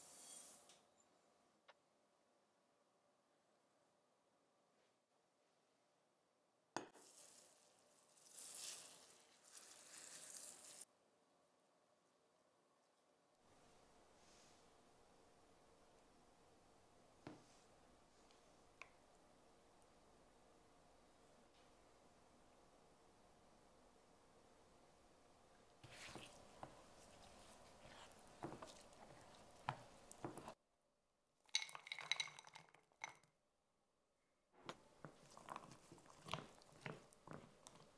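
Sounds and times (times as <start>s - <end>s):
spatula stirring in glass dish: 25.8s - 30.6s, 35.0s - 37.8s
blueberries tumbling into glass dish: 31.5s - 33.2s
milk pouring and splashing: 35.0s - 37.8s.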